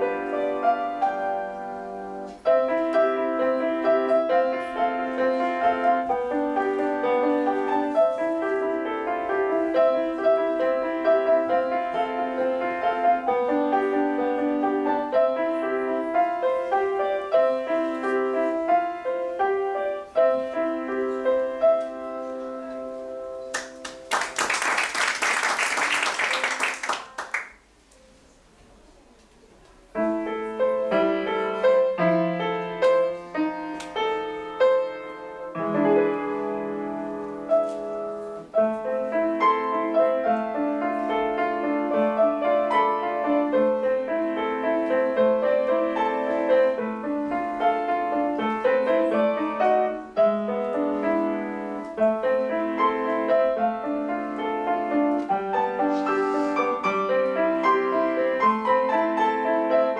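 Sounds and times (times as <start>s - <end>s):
grand piano playing: 0.0s - 25.1s, 29.9s - 59.9s.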